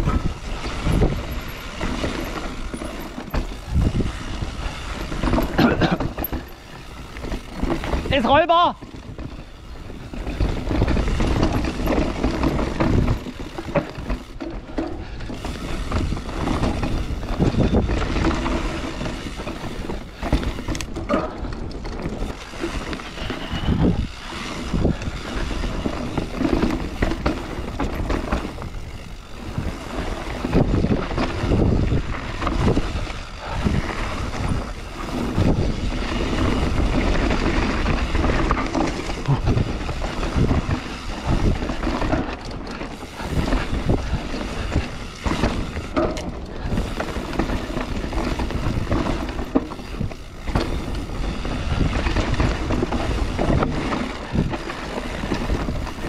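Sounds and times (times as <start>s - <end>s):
wind rushing over microphone: 0.0s - 14.3s, 15.0s - 56.0s
bike rattling over bumps: 0.0s - 56.0s.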